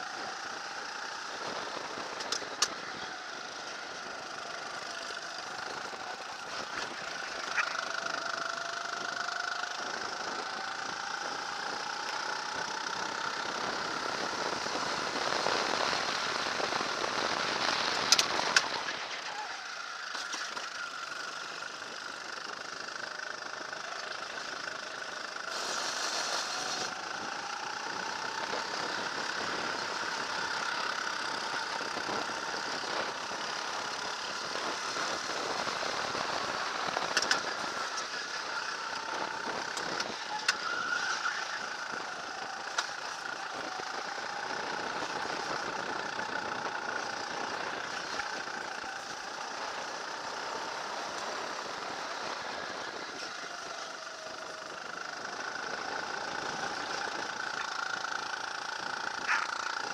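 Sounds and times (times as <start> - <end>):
kart engine accelerating: 0.0 - 59.9.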